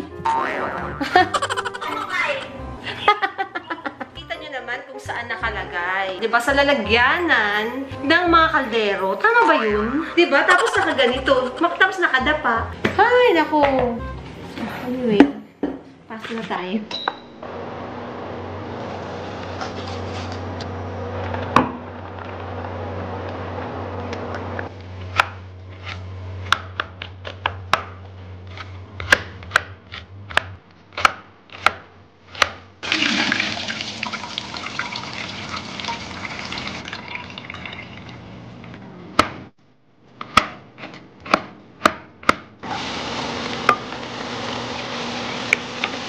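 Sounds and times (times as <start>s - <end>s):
water pouring through metal strainer: 32.8s - 38.2s.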